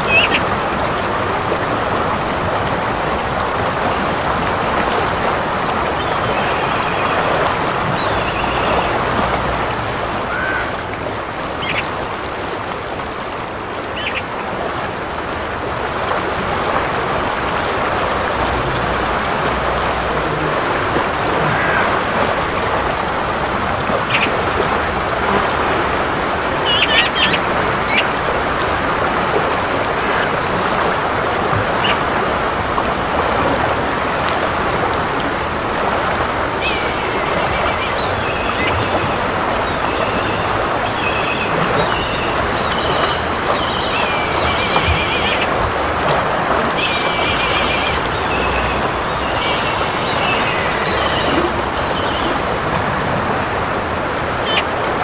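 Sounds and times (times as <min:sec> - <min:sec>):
river rushing over rocks: 0:00.0 - 0:55.0
short high calls: 0:08.4 - 0:13.8, 0:44.6 - 0:48.8.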